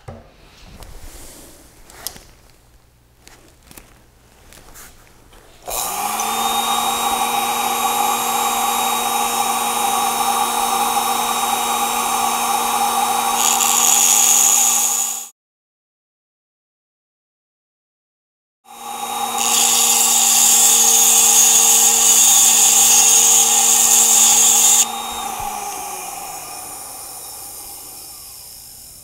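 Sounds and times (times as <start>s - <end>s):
harsh grinding hiss: 5.6s - 15.3s, 18.7s - 29.0s
rotary tool high whine: 5.6s - 15.3s, 18.7s - 29.0s.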